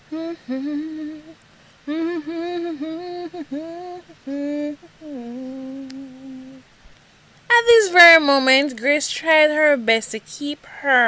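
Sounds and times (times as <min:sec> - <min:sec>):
woman humming: 0:00.0 - 0:06.6.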